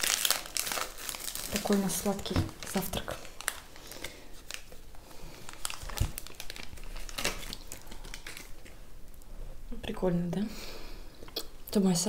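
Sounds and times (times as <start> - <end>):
plastic wrappers crinkling: 0.0 - 9.2.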